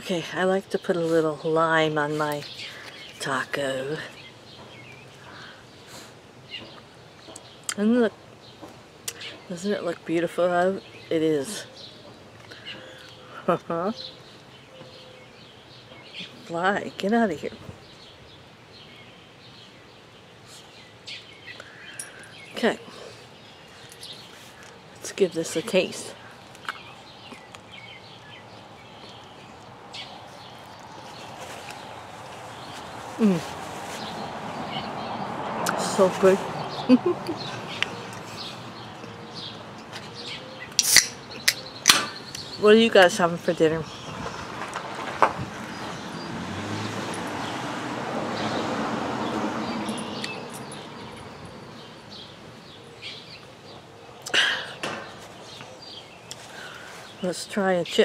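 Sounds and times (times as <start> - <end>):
outdoor background noise: 0.0 - 58.0
small birds chirping: 0.0 - 58.0
car passing: 27.0 - 40.3, 43.5 - 52.8.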